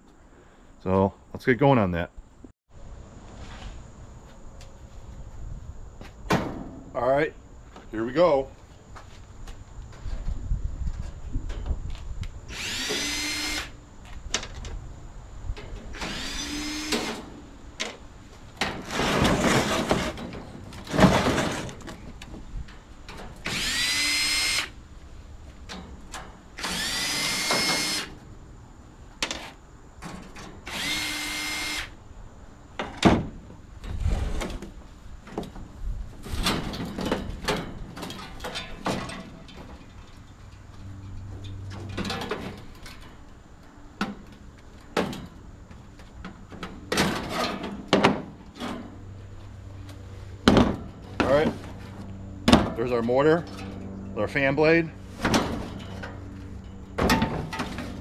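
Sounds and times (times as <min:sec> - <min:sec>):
cordless drill whine: 0:12.5 - 0:13.8, 0:16.0 - 0:17.2, 0:23.5 - 0:24.7, 0:26.6 - 0:28.1, 0:30.7 - 0:32.0.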